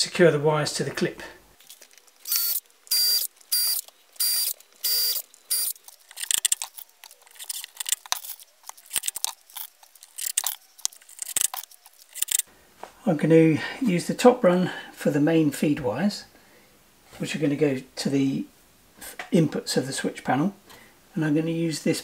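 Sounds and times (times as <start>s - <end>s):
small clicks and rattles of screws: 1.6s - 12.5s
cordless drill whining: 2.2s - 5.8s.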